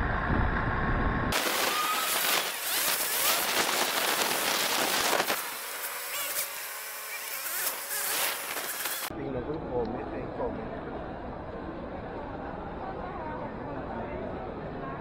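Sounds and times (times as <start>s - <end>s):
wind noise on microphone: 0.0s - 5.5s.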